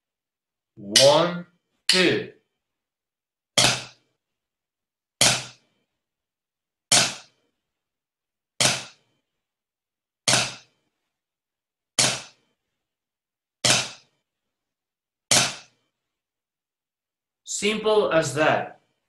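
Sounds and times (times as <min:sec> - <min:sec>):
drumsticks hitting practice pad: 0:00.8 - 0:01.3, 0:03.6 - 0:03.9, 0:05.2 - 0:05.6, 0:06.9 - 0:07.3, 0:08.6 - 0:09.0, 0:10.3 - 0:10.7, 0:12.0 - 0:12.3, 0:13.6 - 0:14.0, 0:15.3 - 0:15.7.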